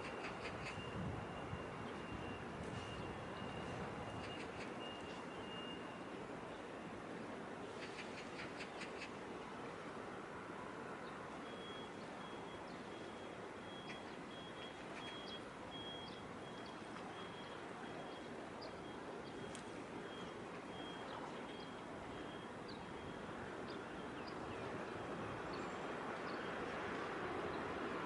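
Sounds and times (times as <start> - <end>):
faint high beeping tone: 0.8 - 6.1, 11.4 - 23.3.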